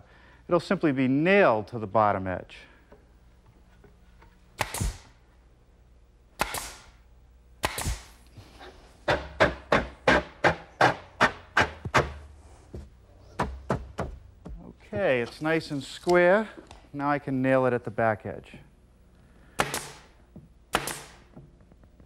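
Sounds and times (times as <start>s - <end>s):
sharp strikes: 4.6s - 5.1s, 7.6s - 8.1s
nail gun shots: 4.6s - 5.2s, 6.4s - 7.0s, 7.6s - 8.2s, 19.5s - 21.3s.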